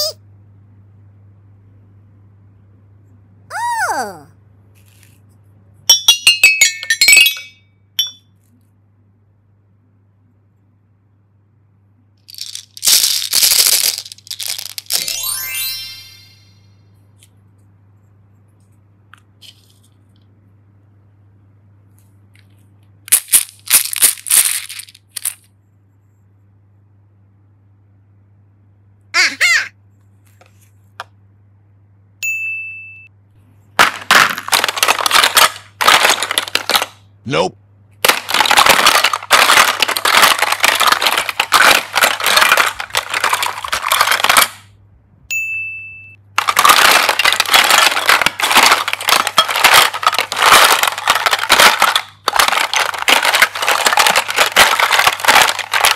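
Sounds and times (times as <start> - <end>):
faint steady hum: 0.0 - 55.9
plastic toy pieces clattering: 6.1 - 8.2, 12.2 - 16.3, 22.3 - 25.5, 33.8 - 37.1, 38.0 - 44.7, 46.4 - 55.9
bright ding: 32.2 - 33.1, 45.3 - 46.2.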